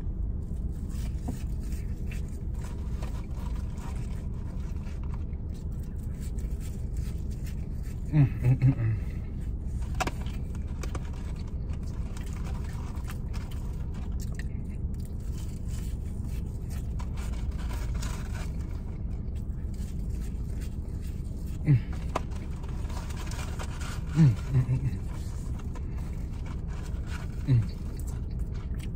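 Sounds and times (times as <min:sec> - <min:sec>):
car idling hum: 0:00.0 - 0:28.9
paper carton rustling: 0:00.6 - 0:05.3, 0:15.2 - 0:28.7
chewing: 0:09.3 - 0:28.9.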